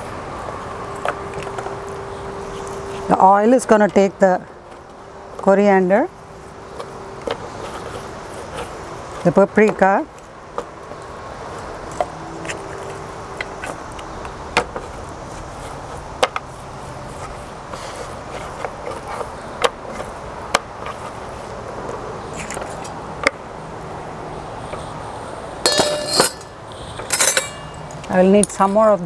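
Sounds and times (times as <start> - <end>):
low background noise: 0.0 - 29.0
steel plate clattering: 25.6 - 28.0.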